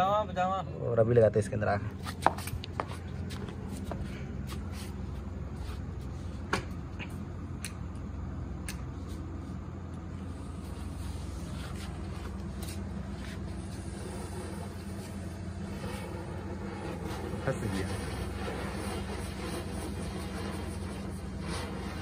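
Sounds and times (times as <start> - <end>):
low hum: 1.7 - 22.0
firework hissing: 10.1 - 22.0
firework crackling and popping: 10.2 - 22.0.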